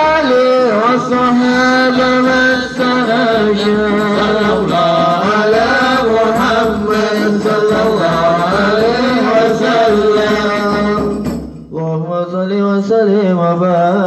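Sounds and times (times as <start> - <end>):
men chanting: 0.0 - 14.0.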